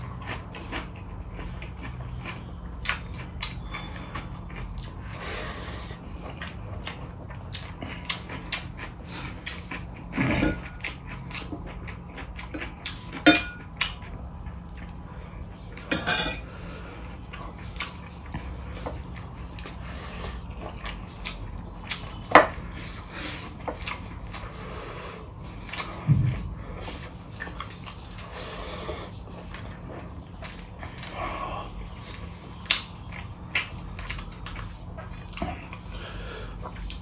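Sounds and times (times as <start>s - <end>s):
chewing: 0.0s - 15.9s, 16.5s - 37.0s
tableware clicks and knocks: 15.9s - 16.4s.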